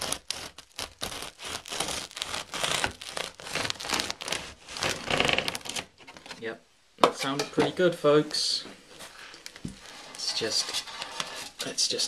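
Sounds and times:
knife crunching through bread crust: 0:00.0 - 0:05.8.

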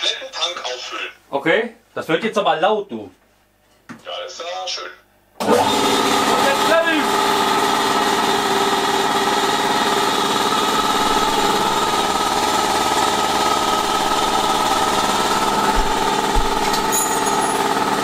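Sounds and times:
air compressor running: 0:05.4 - 0:18.0.

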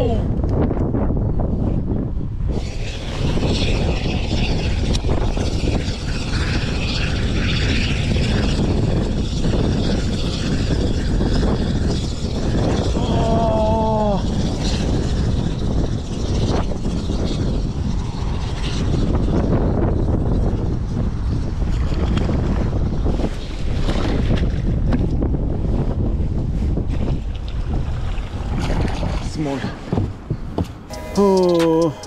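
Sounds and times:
wind buffeting microphone: 0:00.0 - 0:30.9
short falling pitched sound: 0:30.9 - 0:32.0.

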